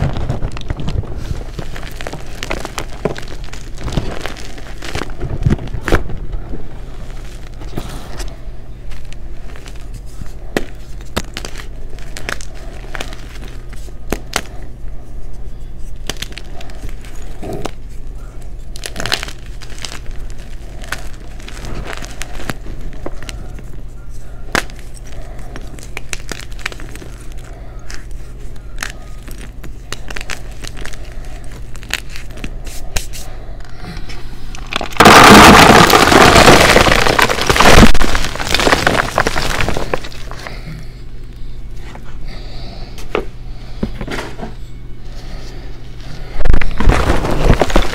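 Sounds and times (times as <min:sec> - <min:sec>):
hands crushing chalk blocks: 0:00.0 - 0:06.1, 0:08.9 - 0:14.7, 0:15.8 - 0:33.3, 0:34.6 - 0:40.6, 0:46.4 - 0:47.9
low hum: 0:00.0 - 0:47.9.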